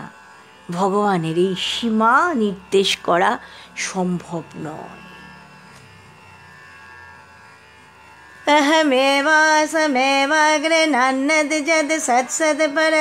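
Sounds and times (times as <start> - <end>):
woman singing slow melody: 8.5 - 13.0.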